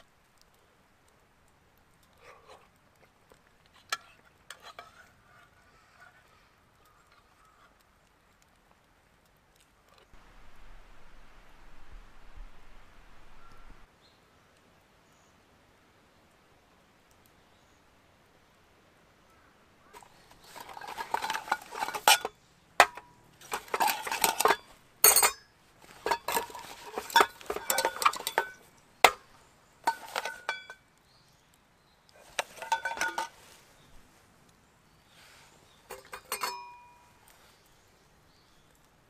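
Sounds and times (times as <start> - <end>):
metal and glass clinking: 20.0 - 29.2, 29.8 - 30.8, 32.2 - 33.4, 35.9 - 37.2
short metallic ring: 35.9 - 37.1.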